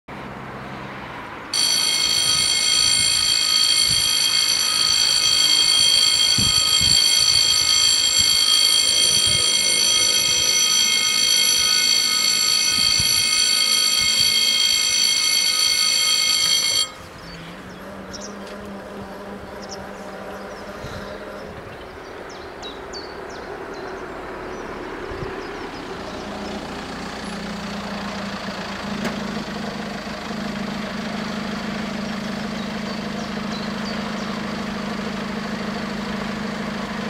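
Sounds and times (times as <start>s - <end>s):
level crossing warning tone: 1.5s - 22.0s, 25.7s - 37.0s.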